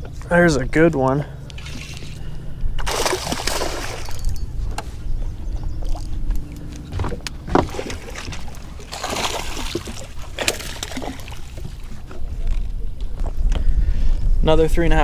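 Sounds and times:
steady low rumble: 0.0s - 9.0s
fish splashing at surface: 2.8s - 4.4s, 7.5s - 11.8s
rod and net clatter: 2.8s - 4.5s.

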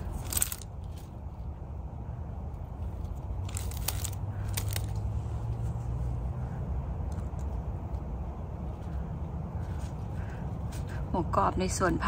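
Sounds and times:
leaves and gravel crunching underfoot: 0.0s - 1.5s, 2.7s - 6.2s.

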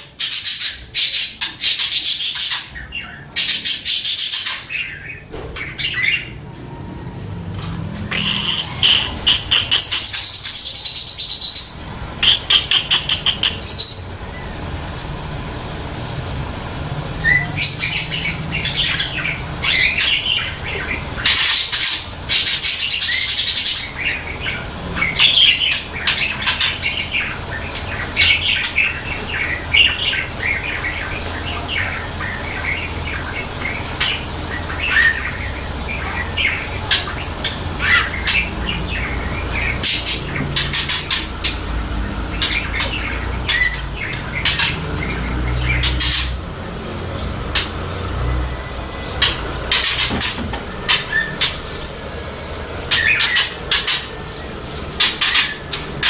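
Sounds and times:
budgerigar warbling: 8.1s - 14.4s, 17.2s - 46.5s, 52.9s - 56.0s.

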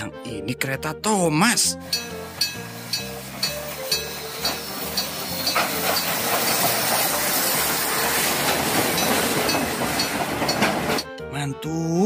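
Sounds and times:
steam hissing: 1.8s - 11.1s
train wheels on rails: 1.8s - 11.1s.

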